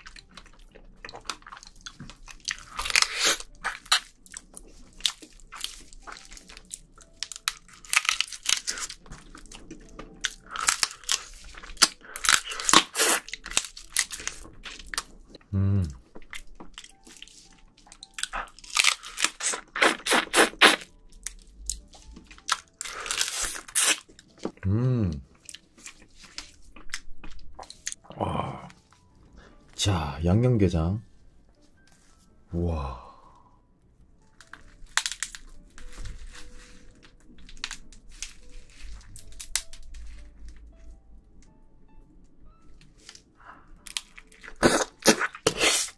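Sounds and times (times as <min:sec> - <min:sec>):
crab shell crunching: 0:00.0 - 0:24.6, 0:34.2 - 0:40.7, 0:42.9 - 0:45.9
wet sucking: 0:19.4 - 0:20.9, 0:44.6 - 0:45.9.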